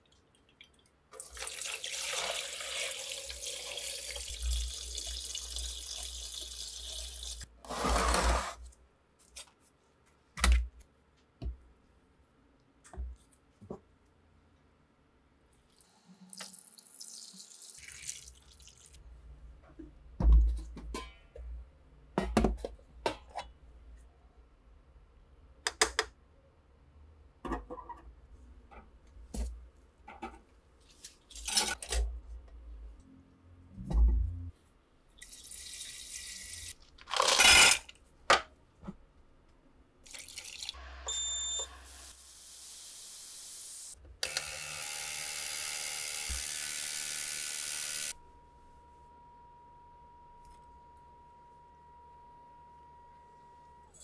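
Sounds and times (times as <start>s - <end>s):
water pouring and splashing: 0.2s - 7.5s, 16.3s - 19.0s, 40.1s - 40.8s.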